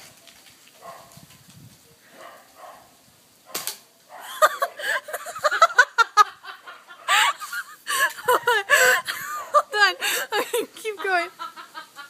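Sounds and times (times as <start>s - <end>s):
bb gun pop: 3.5s - 3.8s
people giggling: 4.2s - 12.0s.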